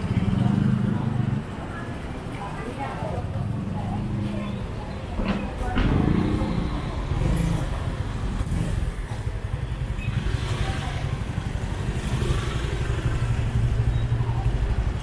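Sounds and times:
scooter and car engines in traffic: 0.0 - 15.0.

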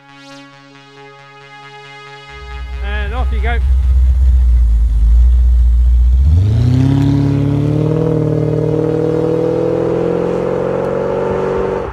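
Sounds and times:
car engine revving and driving off: 2.5 - 11.9.

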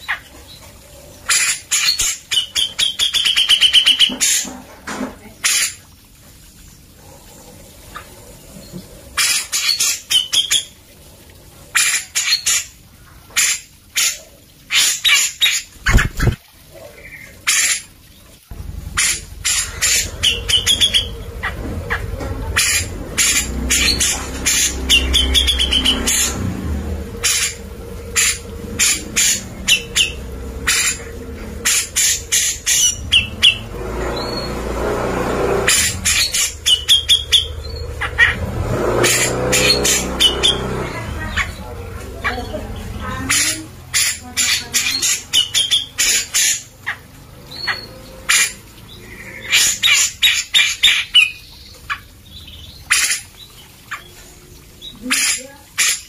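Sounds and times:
bird singing: 18.5 - 34.7, 35.7 - 38.5.

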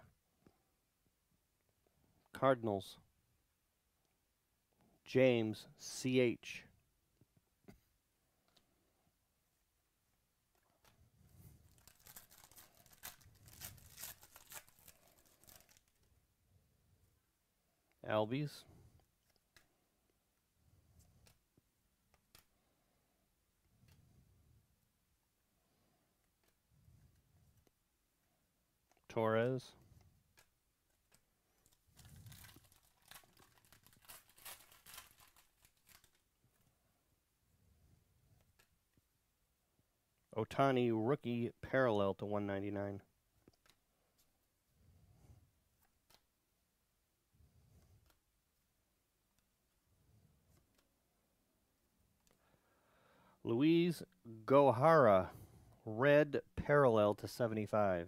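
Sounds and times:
foil wrapper tearing and crinkling: 11.7 - 16.0, 31.6 - 36.2.

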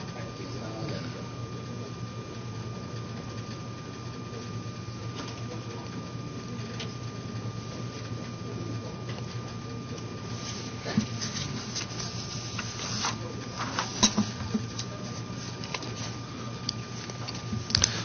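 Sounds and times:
faint distant voices: 0.0 - 18.0
steady low hum: 0.0 - 18.0.

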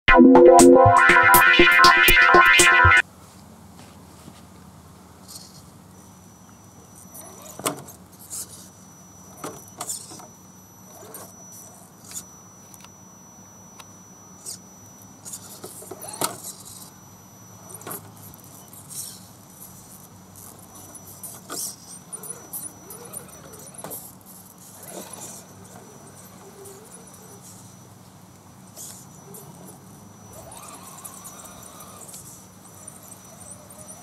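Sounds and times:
toy truck electric motor whining: 7.0 - 12.8, 13.8 - 28.0, 28.7 - 34.0.

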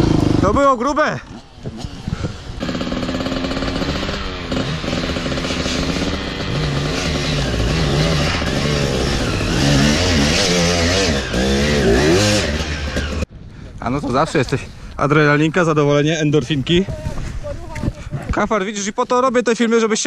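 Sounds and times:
dirt bike engine revving: 0.0 - 13.3.

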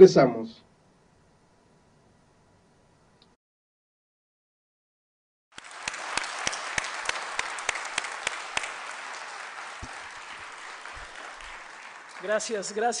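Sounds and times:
audience applauding: 5.5 - 13.0.

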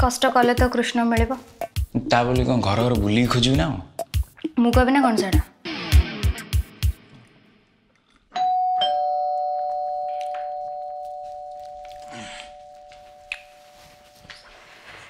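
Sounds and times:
two-tone doorbell chime: 8.4 - 14.8.

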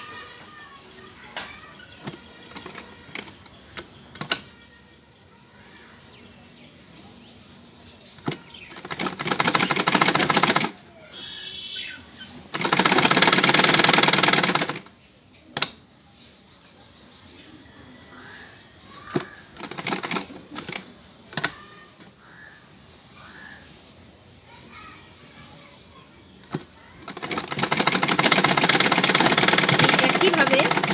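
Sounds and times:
sharp clicks: 1.4 - 4.6, 12.5 - 14.9, 15.5 - 15.8, 18.9 - 22.2, 26.4 - 30.9
sewing machine stitching: 2.0 - 4.5, 8.2 - 10.9, 12.4 - 14.9, 19.0 - 21.6, 26.4 - 30.9.

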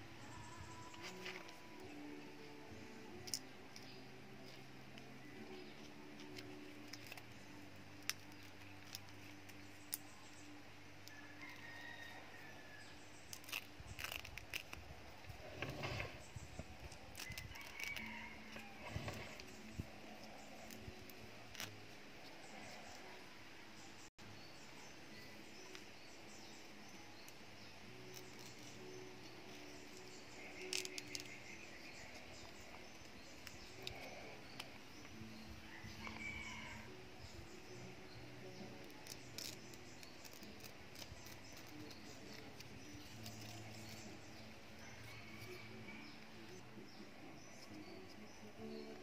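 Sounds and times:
dry leaf crackling and rustling: 13.2 - 23.1, 27.8 - 35.2, 37.8 - 46.6.

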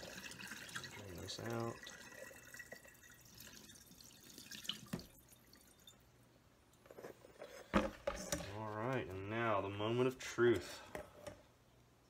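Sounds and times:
water trickling into sink: 0.0 - 6.0.

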